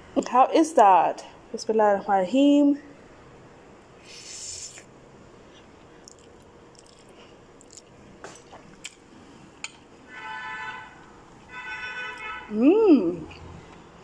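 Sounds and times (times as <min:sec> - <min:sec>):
quiet chewing: 0:05.5 - 0:09.0
noodles slurping: 0:06.0 - 0:07.9.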